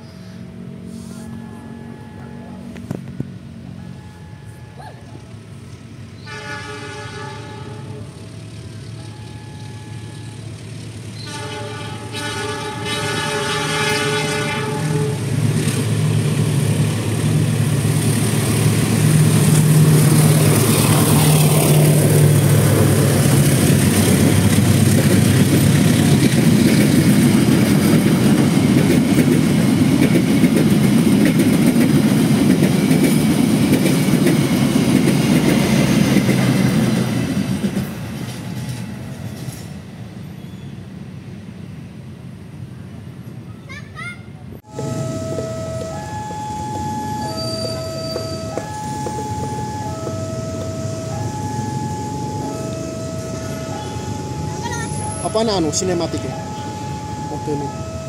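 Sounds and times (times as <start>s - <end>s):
locomotive engine drone: 0.0s - 43.5s, 44.4s - 58.0s
train wheels rumbling on rails: 5.2s - 41.3s, 44.6s - 58.0s
locomotive horn blast: 6.2s - 8.2s, 11.2s - 15.4s.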